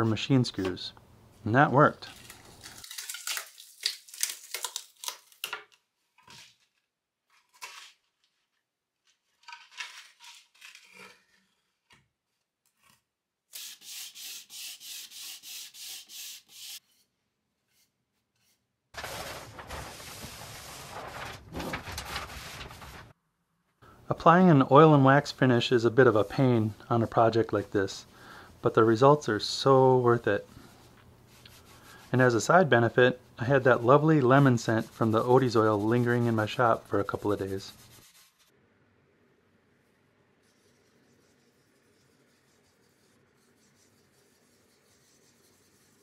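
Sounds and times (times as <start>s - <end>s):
rubbing strokes: 13.6s - 17.1s, 17.7s - 23.1s, 29.9s - 38.5s, 40.4s - 46.0s.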